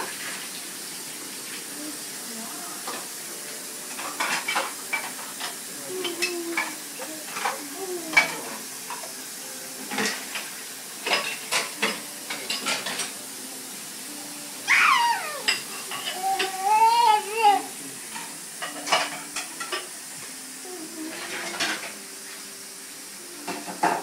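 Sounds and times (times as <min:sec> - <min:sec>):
steady hiss: 0:00.0 - 0:24.0
dishes and cutlery clinking: 0:02.8 - 0:13.3, 0:15.0 - 0:22.6, 0:23.4 - 0:24.0.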